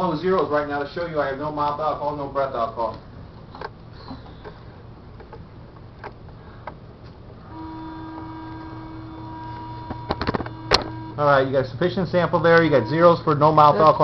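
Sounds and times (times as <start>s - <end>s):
steady electronic tone: 7.4s - 14.0s.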